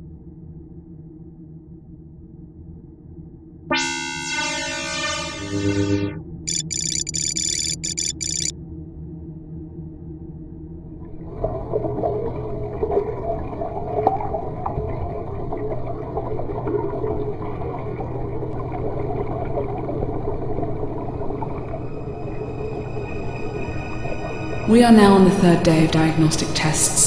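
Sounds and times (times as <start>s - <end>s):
underwater wash: 11.1s - 27.0s.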